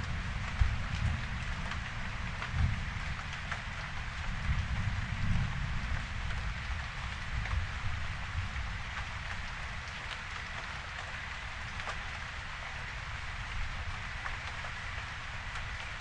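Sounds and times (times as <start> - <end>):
raindrops ticking close by: 0.0 - 16.0
steady rain falling: 0.0 - 16.0.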